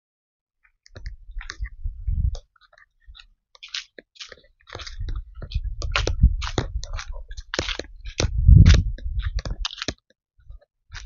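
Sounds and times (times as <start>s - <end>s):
microphone handling rumble: 1.0s - 2.4s, 4.8s - 9.8s
footsteps crunching dry leaves: 3.6s - 9.9s.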